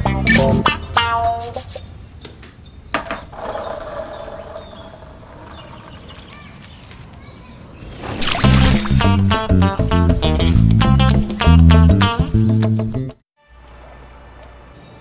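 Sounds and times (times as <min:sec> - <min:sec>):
low steady outdoor background: 0:00.0 - 0:08.3.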